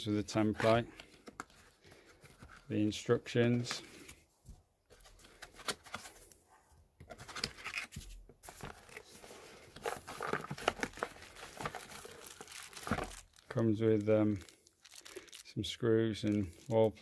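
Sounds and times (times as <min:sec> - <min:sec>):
cardboard packaging rustling: 0:07.1 - 0:15.5, 0:16.1 - 0:17.0.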